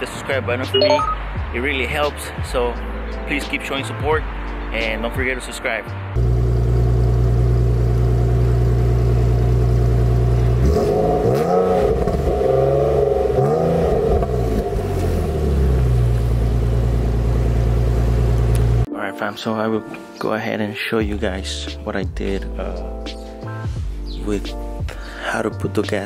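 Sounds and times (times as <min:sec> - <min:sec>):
car exhaust idling and revving: 0:06.2 - 0:18.9.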